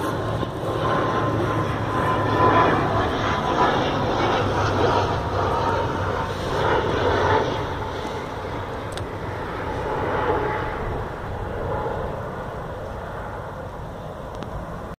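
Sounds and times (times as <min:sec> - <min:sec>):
distant vehicle engine: 0:00.0 - 0:14.9.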